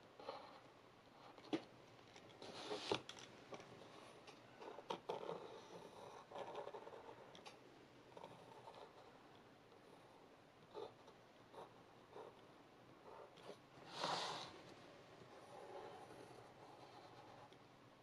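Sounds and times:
pencil scratching on paper: 2.4s - 3.0s, 4.6s - 7.3s, 8.1s - 9.2s, 15.3s - 17.6s.

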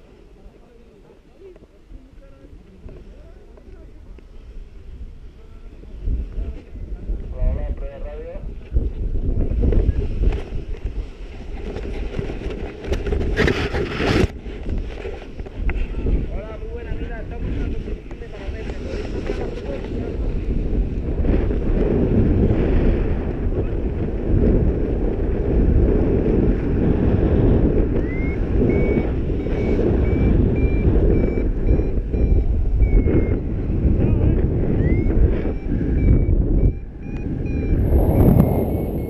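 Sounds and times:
wind buffeting microphone: 0.0s - 39.0s
variometer high-pitched beeping: 28.0s - 39.0s.

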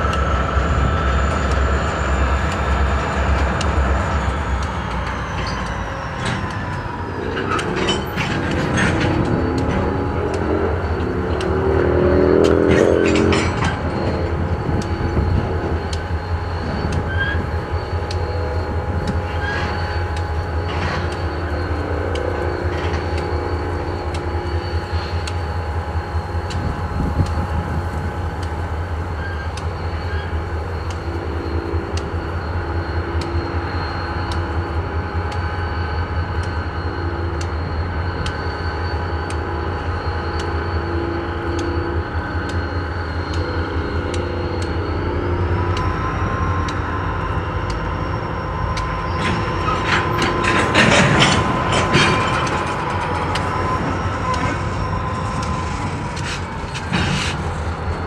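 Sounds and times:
freight cars rumbling: 0.0s - 58.0s
rail squealing: 0.0s - 58.0s.

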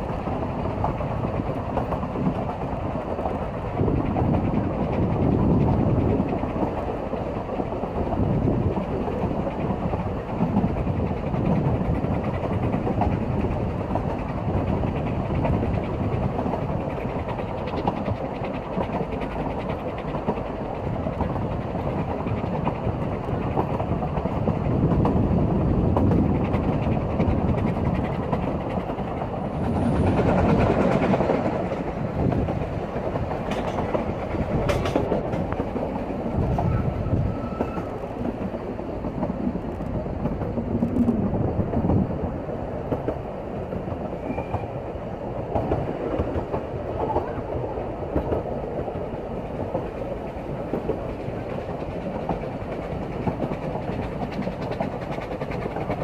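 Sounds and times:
clickety-clack over rail joints: 0.0s - 56.0s
train wheels rumbling on rail: 0.0s - 56.0s.

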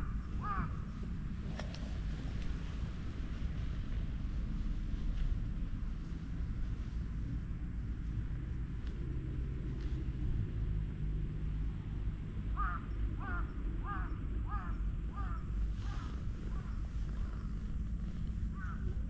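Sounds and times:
bird calling: 0.0s - 1.9s, 12.6s - 19.0s
steady low rumble: 0.0s - 19.0s.

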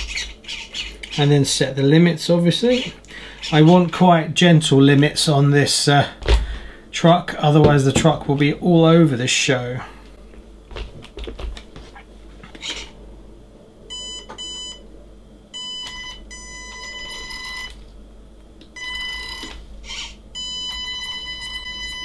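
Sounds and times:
electronic transmitter beeps: 20.4s - 22.0s.

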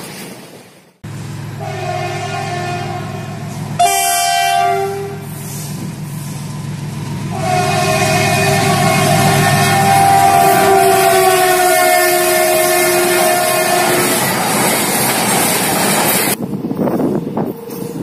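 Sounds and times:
train rumbling: 0.0s - 18.0s
two-note train horn: 1.6s - 5.4s, 7.3s - 14.2s.

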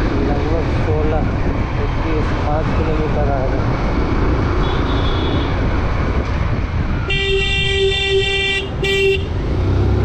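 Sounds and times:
road and engine rumble: 0.0s - 10.0s
vehicle horn honking: 7.1s - 9.3s.

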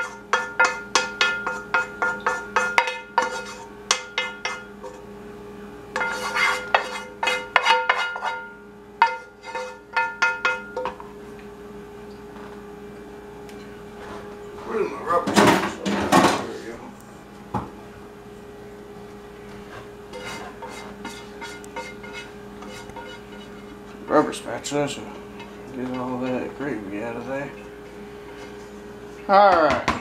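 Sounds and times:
metal saucepan knocking and scraping: 0.0s - 5.0s, 6.0s - 11.0s, 20.1s - 23.7s
faint steady hum: 0.0s - 30.0s.

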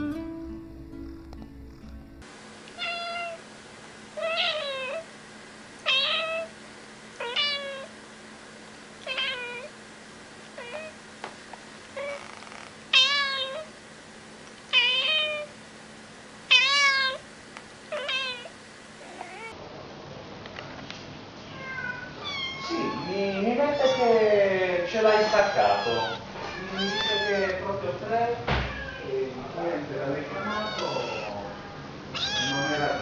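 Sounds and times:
cat meowing: 2.8s - 3.4s, 4.2s - 5.1s, 5.8s - 6.5s, 7.2s - 7.9s, 9.0s - 9.7s, 10.6s - 11.0s, 12.0s - 13.7s, 14.7s - 15.5s, 16.5s - 17.2s, 17.9s - 19.6s, 21.5s - 24.3s, 25.0s - 27.6s, 28.6s - 29.2s, 30.3s - 33.0s.

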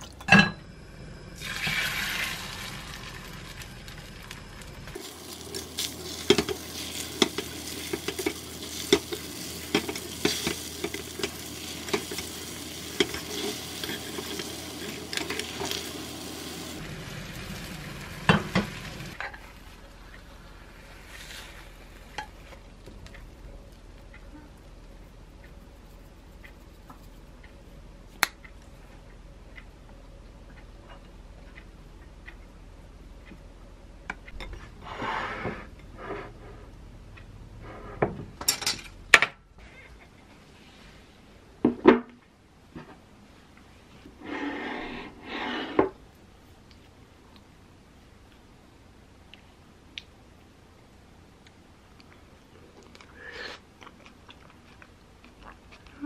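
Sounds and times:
egg sizzling in a frying pan: 1.3s - 22.5s
chopsticks scraping a pan: 5.5s - 16.1s.

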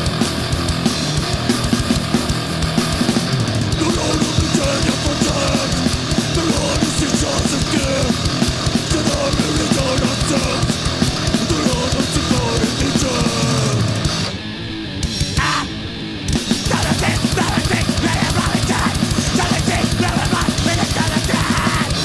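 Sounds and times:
pounding drums: 0.0s - 14.3s, 16.3s - 22.0s
distorted guitar: 0.0s - 22.0s
hardcore punk music: 0.0s - 22.0s.

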